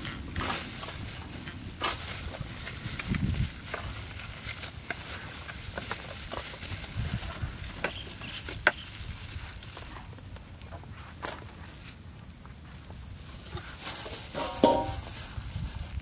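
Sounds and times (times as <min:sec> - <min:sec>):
plastic bag crinkling: 0:13.7 - 0:16.0.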